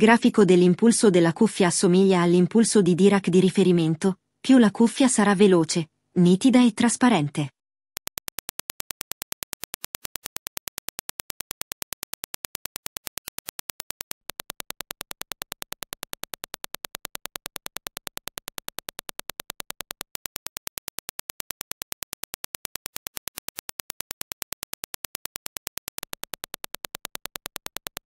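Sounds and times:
sharp test clicks: 8.0s - 28.0s.

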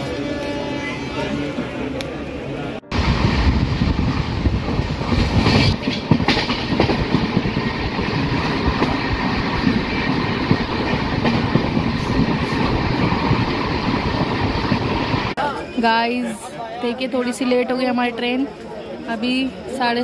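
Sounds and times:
train wheels clickety-clack: 4.7s - 14.9s.

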